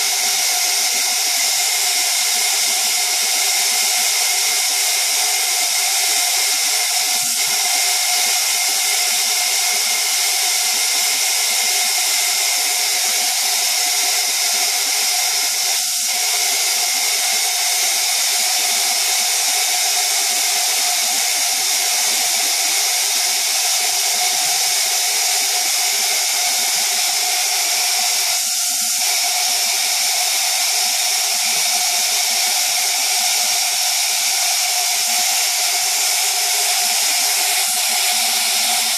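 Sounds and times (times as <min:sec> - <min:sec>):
high-pitched machine whine: 0:00.0 - 0:38.9
loud hiss: 0:20.6 - 0:38.9.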